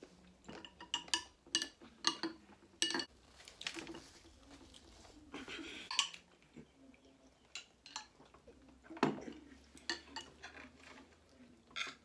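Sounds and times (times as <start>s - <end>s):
cutlery clinking on ceramic plates: 0.5s - 3.1s, 5.9s - 6.3s, 9.0s - 10.8s.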